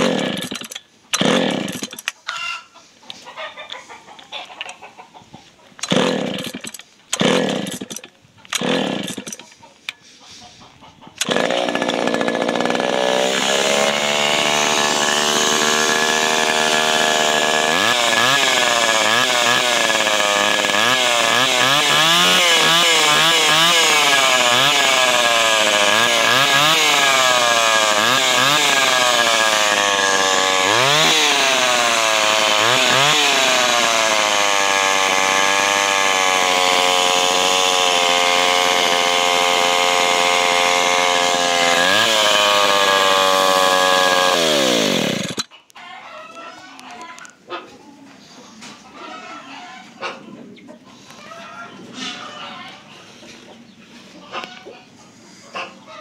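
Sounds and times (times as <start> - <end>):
chainsaw engine shutting off: 0.0 - 2.0, 5.8 - 9.4, 11.2 - 45.4
chainsaw revving: 0.0 - 2.2, 5.8 - 9.4, 11.2 - 45.5.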